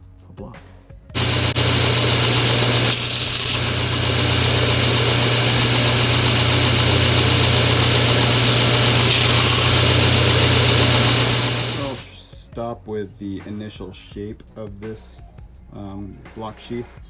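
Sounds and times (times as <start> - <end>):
belt grinder humming: 1.2 - 12.0
wood sanding hiss: 1.2 - 12.0.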